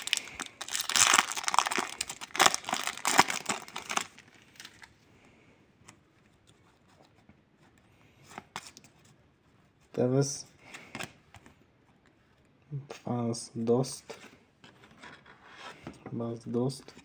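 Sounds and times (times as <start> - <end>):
foil packet tearing and crinkling: 0.0 - 4.9.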